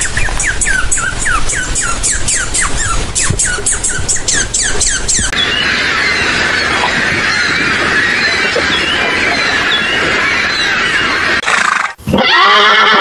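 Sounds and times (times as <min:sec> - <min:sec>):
horse whinnying: 0:11.4 - 0:13.0.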